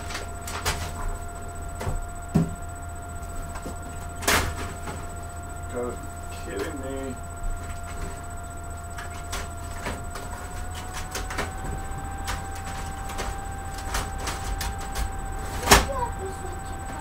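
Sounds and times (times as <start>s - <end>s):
printer whine: 0.0s - 17.0s
printer clicks: 8.9s - 15.9s.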